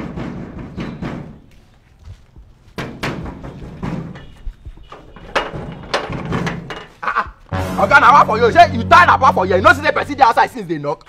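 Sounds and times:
knocking on metal gate: 0:00.0 - 0:01.5, 0:02.8 - 0:07.4.

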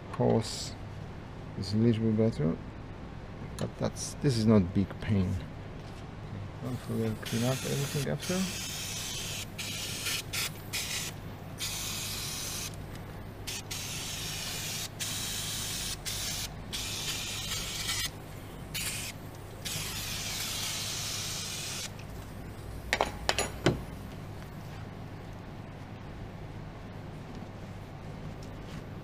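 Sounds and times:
aerosol spray hissing: 0:06.8 - 0:12.8, 0:13.5 - 0:21.9.

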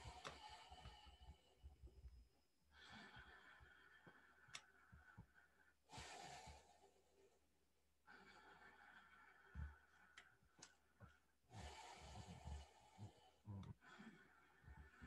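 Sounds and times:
soft clicks: 0:04.4 - 0:05.0
man breathing deeply: 0:11.5 - 0:15.0.

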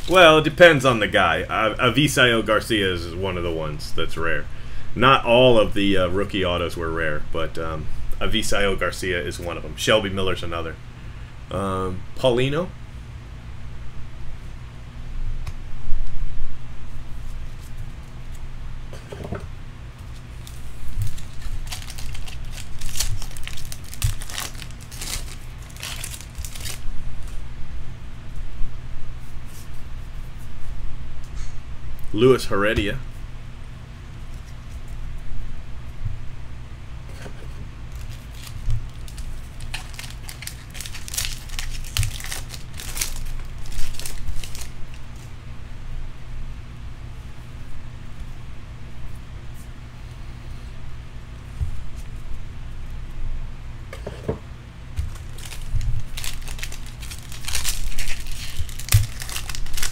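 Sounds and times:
foil wrapper tearing and crinkling: 0:00.0 - 0:00.6, 0:20.1 - 0:27.4, 0:37.9 - 0:45.2, 0:55.0 - 0:59.9.

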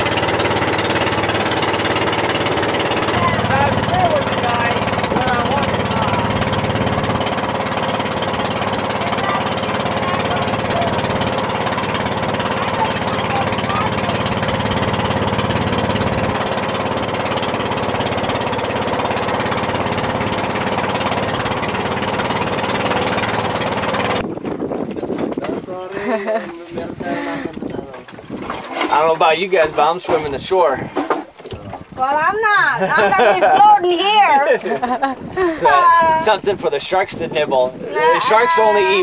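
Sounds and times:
boat engine chugging: 0:00.0 - 0:39.0.

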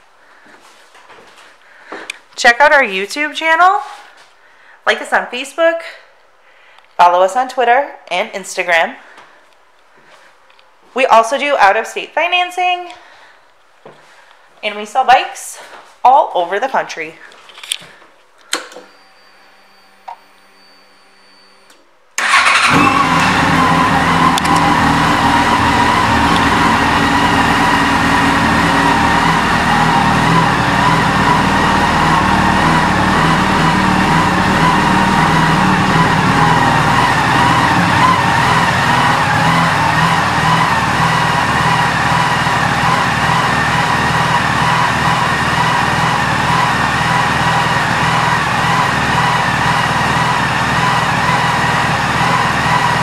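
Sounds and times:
motorcycle engine starting and idling: 0:22.2 - 0:53.0.

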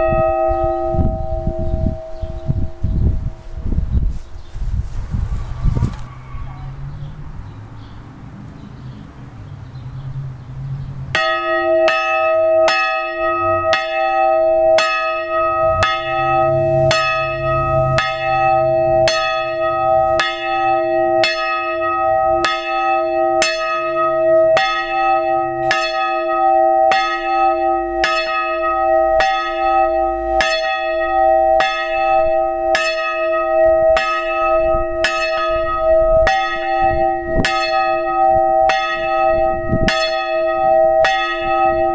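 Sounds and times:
church bell ringing: 0:00.0 - 0:03.6, 0:11.1 - 0:41.9
low rumble: 0:00.0 - 0:11.0, 0:14.4 - 0:20.3.

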